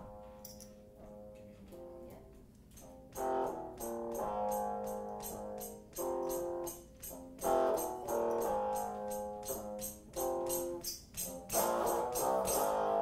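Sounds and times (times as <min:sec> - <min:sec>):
high percussion beat: 0:03.2 - 0:13.0.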